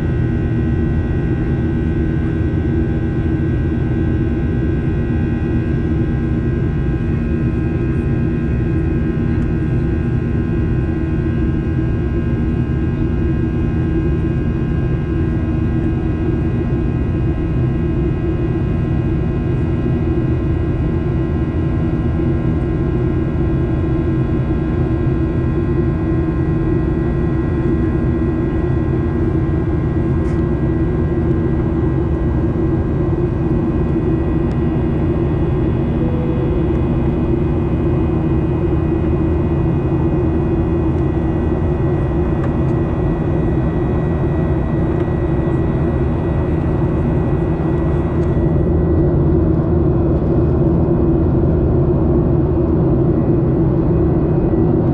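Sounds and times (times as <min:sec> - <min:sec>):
high whine of fan tones: 0:00.0 - 0:54.9
jet engine cabin roar: 0:00.0 - 0:54.9.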